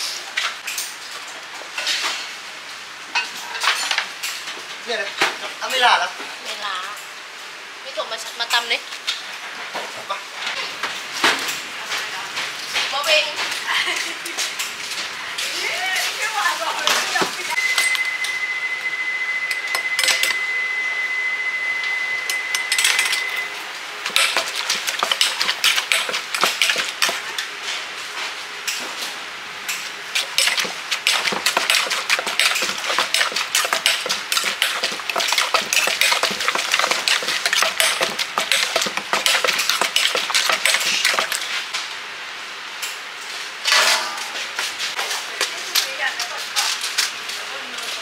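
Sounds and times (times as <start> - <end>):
steady high tone: 17.6 - 23.6
dishes and utensils clattering: 19.8 - 20.4, 24.1 - 27.4, 30.2 - 41.5.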